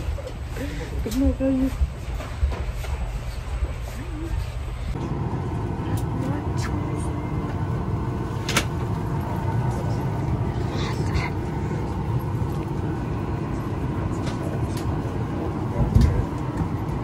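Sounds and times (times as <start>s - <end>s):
airliner cabin hum: 4.9s - 17.0s
faint voices: 9.2s - 17.0s.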